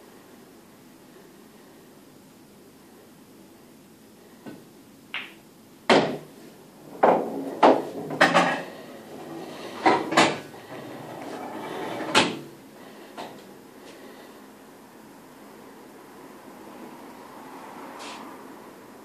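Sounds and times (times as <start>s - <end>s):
pool balls clacking: 5.1s - 12.5s.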